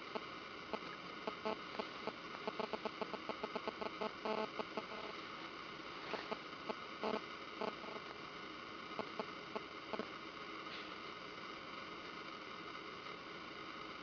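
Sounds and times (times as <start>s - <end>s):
hard drive seeking clicks: 0.0s - 5.2s, 6.0s - 8.2s, 9.0s - 10.1s
steady hiss: 0.0s - 14.0s.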